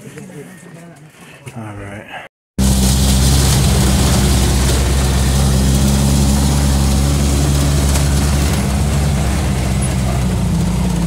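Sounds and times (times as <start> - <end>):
bus engine droning: 2.6 - 11.0.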